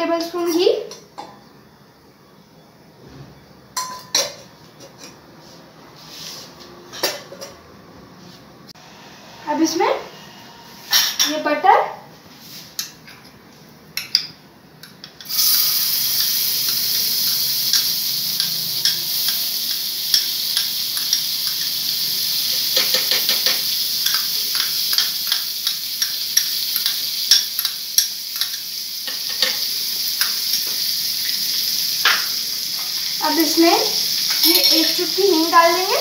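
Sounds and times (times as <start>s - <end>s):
butter sizzling in hot pan: 15.2s - 36.0s
spoon clicking against pan: 16.2s - 21.8s, 22.8s - 30.7s.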